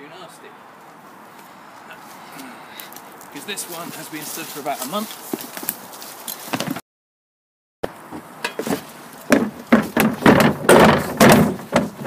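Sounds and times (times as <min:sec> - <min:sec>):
plastic bin thumping and scraping: 0:08.1 - 0:12.0.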